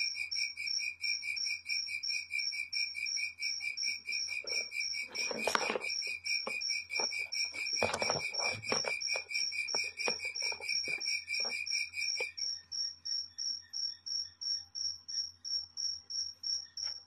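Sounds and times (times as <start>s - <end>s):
cricket chirping: 0.0s - 17.0s
scratching and clicking scuffles: 4.4s - 12.3s.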